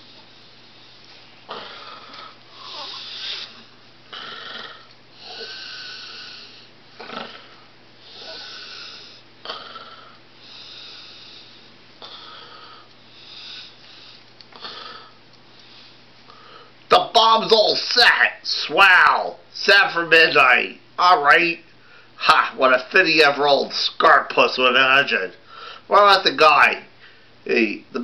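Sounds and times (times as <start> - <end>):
person's breathy snore-like sounds: 1.5 - 13.8.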